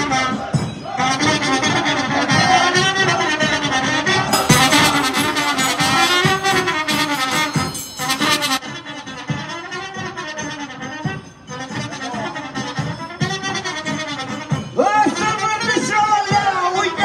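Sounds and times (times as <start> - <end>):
brass band playing dance tune: 0.0 - 16.8
bright high rattle: 4.3 - 8.6.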